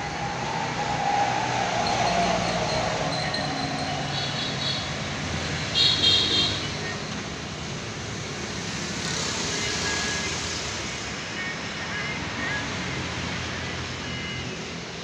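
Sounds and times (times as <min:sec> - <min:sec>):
high-pitched sound: 0:00.0 - 0:05.7
road traffic passing: 0:00.0 - 0:15.0.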